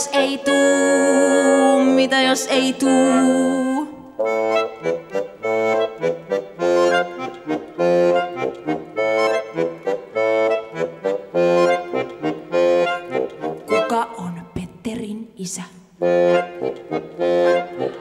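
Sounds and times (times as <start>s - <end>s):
accordion playing chords: 0.0s - 14.3s, 16.0s - 18.0s.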